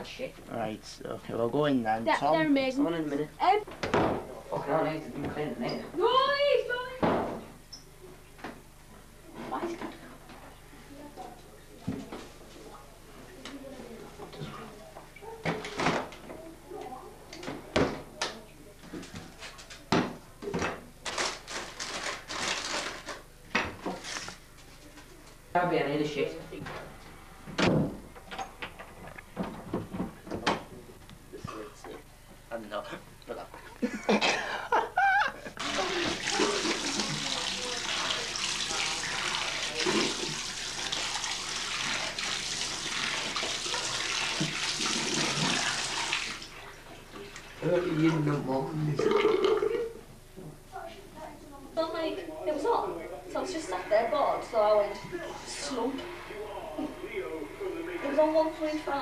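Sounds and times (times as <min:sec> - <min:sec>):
water splashes: 0:35.6 - 0:47.5
water running into bathtub: 0:35.6 - 0:49.8.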